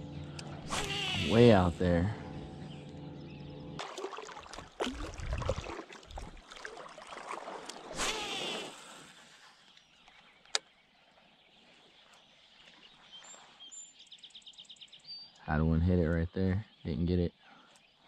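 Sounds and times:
water splashing and sloshing: 0:03.8 - 0:09.8.

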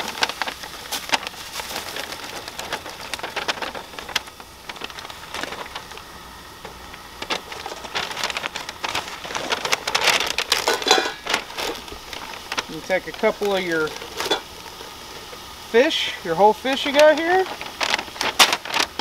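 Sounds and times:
dense crackling and ticking: 0:00.0 - 0:19.0
paper sack rustling: 0:00.0 - 0:19.0.

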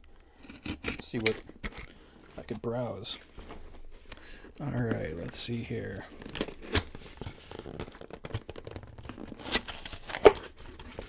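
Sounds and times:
cardboard scraping and crinkling: 0:00.4 - 0:11.0
cardboard clicks and rips: 0:06.0 - 0:11.0
loud cardboard crack: 0:06.1 - 0:11.0.

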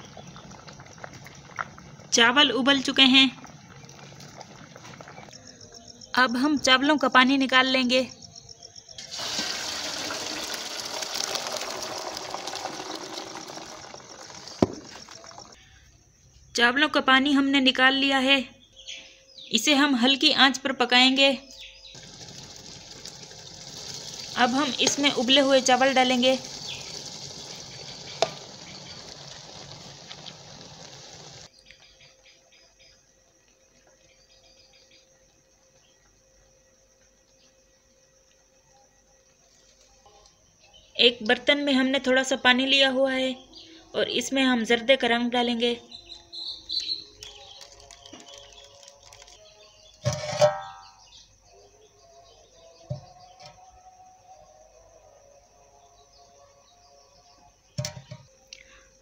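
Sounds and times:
sizzling hiss from pot: 0:09.0 - 0:15.6, 0:21.9 - 0:31.5
water pouring through colander: 0:09.0 - 0:15.6, 0:22.0 - 0:31.5, 0:47.2 - 0:49.6.

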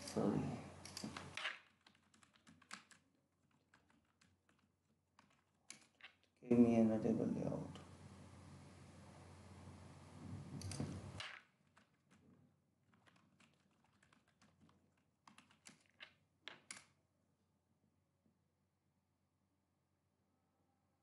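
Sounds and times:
typing on keyboard: 0:00.8 - 0:06.3, 0:10.6 - 0:16.9.

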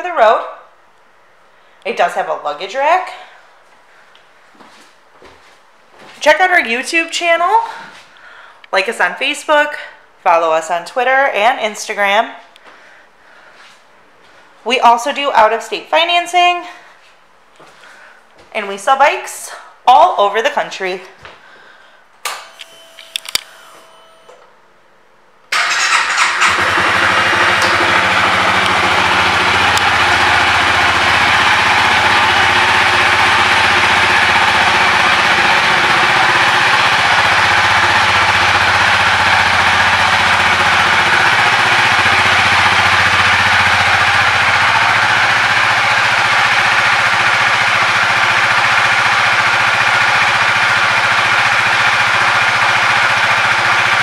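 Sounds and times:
motorcycle engine starting and idling: 0:25.5 - 0:54.0.

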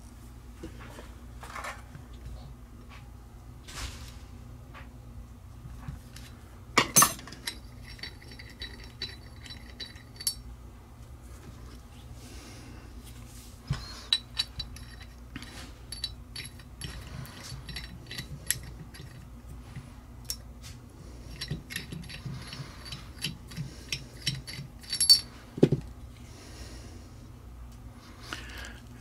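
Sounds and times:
metal tool clicking and clinking: 0:06.8 - 0:10.4, 0:13.8 - 0:19.2, 0:21.3 - 0:25.3.

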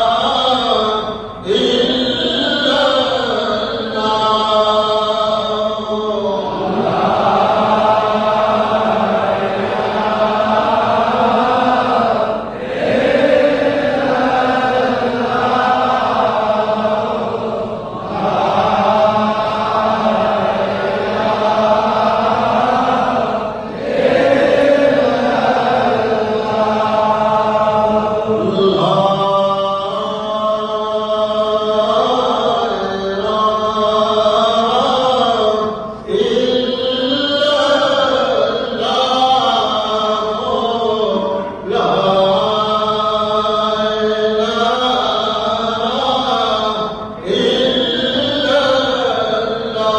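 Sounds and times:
voices chanting: 0:01.4 - 0:35.3.

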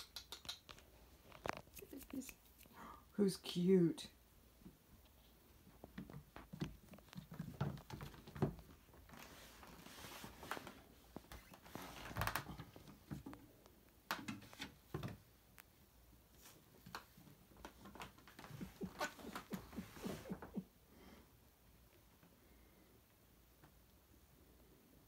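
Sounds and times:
kitten paws pattering: 0:00.0 - 0:02.8, 0:05.0 - 0:13.5.

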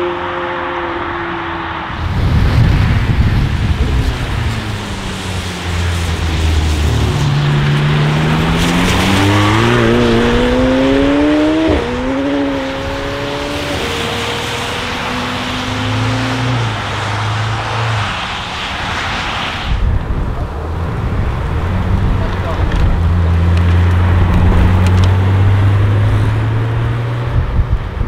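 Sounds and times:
car engine accelerating: 0:00.0 - 0:18.9, 0:20.2 - 0:28.0
hiss of tyre spray: 0:18.0 - 0:19.8.

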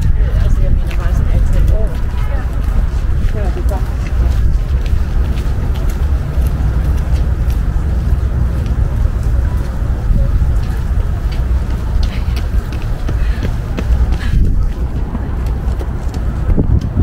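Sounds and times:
steady low rumble: 0:00.0 - 0:17.0
light ticks and rustles: 0:00.6 - 0:09.8.

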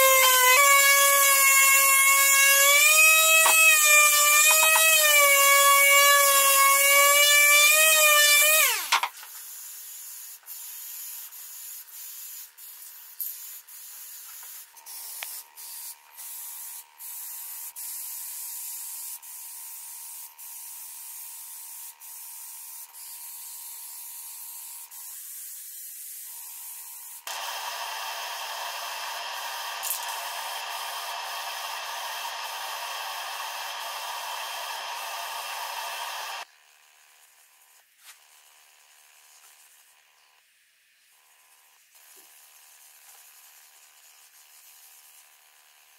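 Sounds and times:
palm sander whining on wood: 0:00.0 - 0:09.0, 0:27.3 - 0:36.5
spray can hissing: 0:09.4 - 0:23.2, 0:27.0 - 0:36.4.

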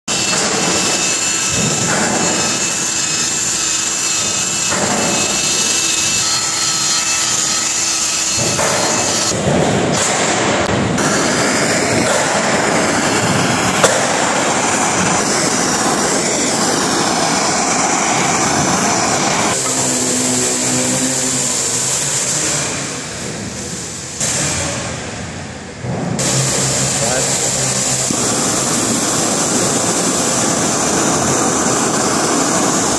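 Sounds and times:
drill motor whine: 0:00.1 - 0:09.4, 0:11.0 - 0:23.1, 0:26.2 - 0:32.9
wire bit scraping steel plate: 0:00.1 - 0:09.4
machinery running with hum and hiss: 0:00.1 - 0:32.9.

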